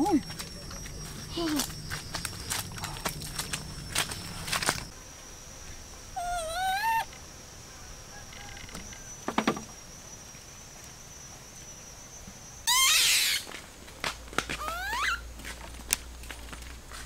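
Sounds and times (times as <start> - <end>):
monkey squealing: 6.2 - 7.1, 12.7 - 13.5, 14.6 - 15.2.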